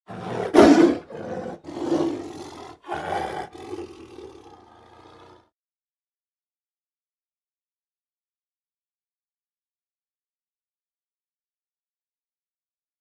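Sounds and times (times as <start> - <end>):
tiger growl: 0.1 - 5.5
tiger roaring: 0.1 - 5.5.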